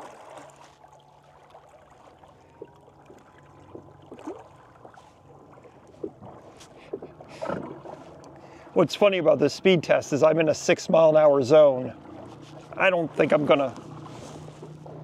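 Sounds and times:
low hum: 0.0 - 15.0
water splashes: 0.0 - 15.0.

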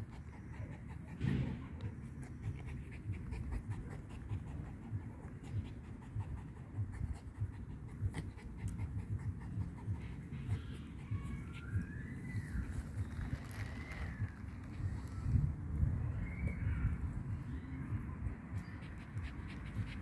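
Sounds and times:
dog panting: 0.0 - 13.0, 18.2 - 20.0.

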